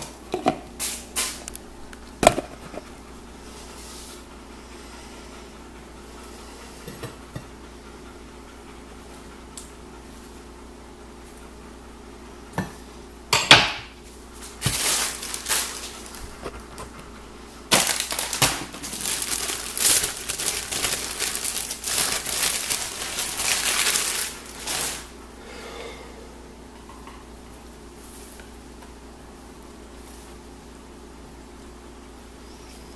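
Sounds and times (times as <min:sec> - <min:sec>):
plastic package crinkling: 0:14.4 - 0:16.2, 0:17.7 - 0:25.1.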